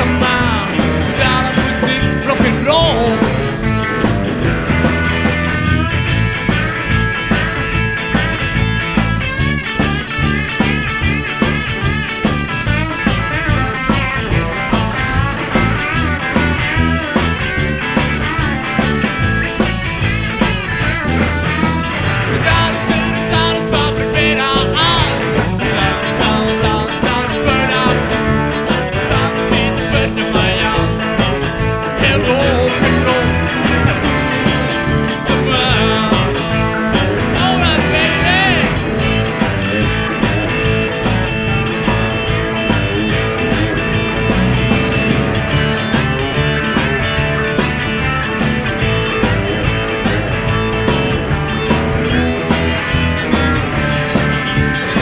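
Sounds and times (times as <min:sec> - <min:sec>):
bass: 0:00.0 - 0:55.0
electric guitar lead lines: 0:00.0 - 0:55.0
steady drum beat: 0:00.0 - 0:55.0.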